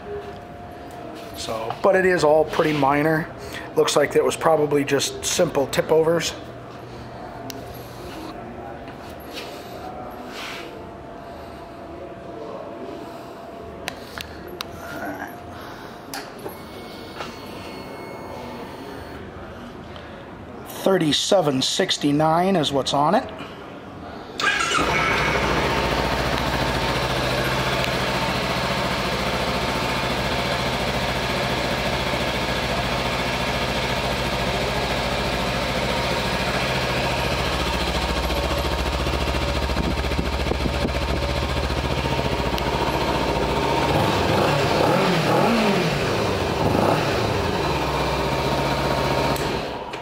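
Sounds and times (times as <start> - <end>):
motorcycle engine idling and revving: 24.4 - 49.8.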